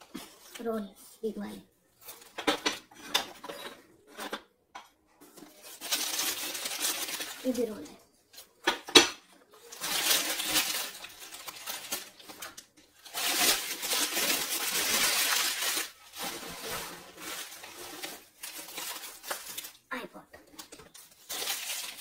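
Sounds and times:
packaging rustling and crinkling: 5.2 - 8.6, 9.5 - 19.9, 20.5 - 22.0.

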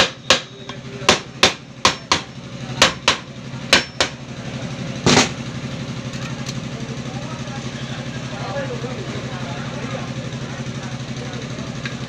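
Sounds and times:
hammer tapping metal: 0.0 - 4.2.

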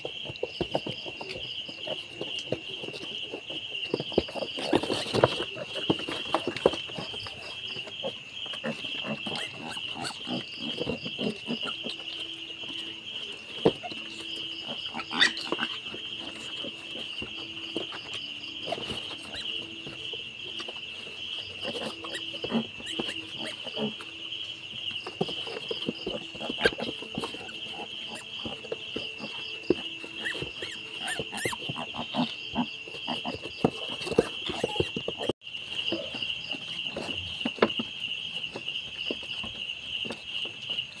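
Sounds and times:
insects chirping: 0.0 - 41.0
pigs shuffling: 0.0 - 41.0
pigs grunting: 4.0 - 20.1, 21.4 - 35.3.

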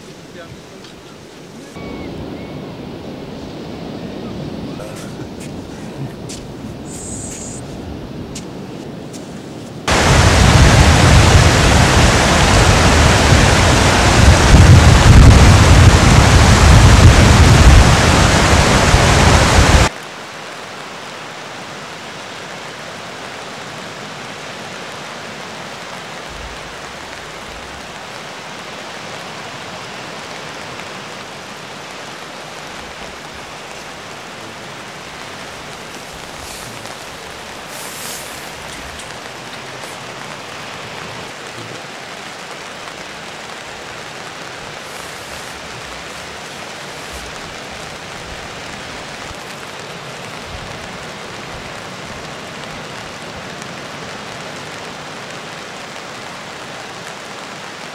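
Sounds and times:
distant surf hiss: 0.0 - 57.8
wind on microphone: 1.5 - 19.9, 26.2 - 28.0
surf breaking: 1.6 - 19.9, 32.7 - 41.8.

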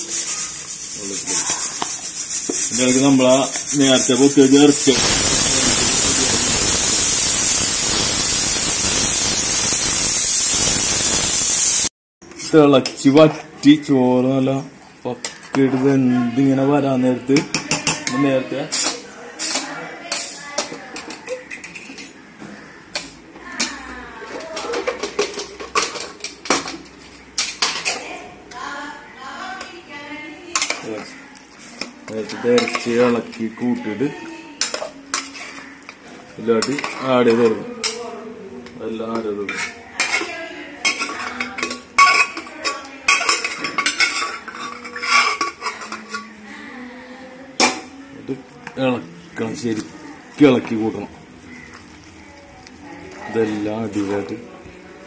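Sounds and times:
steel spoon scraping a metal pot: 0.0 - 11.8, 18.7 - 22.2, 34.6 - 36.0, 39.4 - 46.4.

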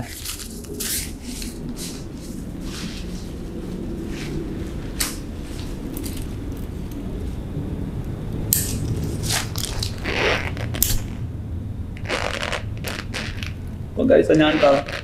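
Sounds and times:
umbrella canopy rustling: 0.0 - 6.5, 8.7 - 11.2, 12.0 - 15.0
umbrella frame clicking: 12.0 - 13.6, 14.4 - 15.0.

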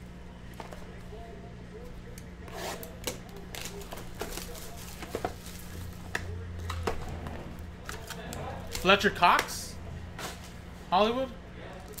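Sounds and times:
steady low hum: 0.0 - 12.0
cellophane wrap crackling: 2.8 - 6.8.

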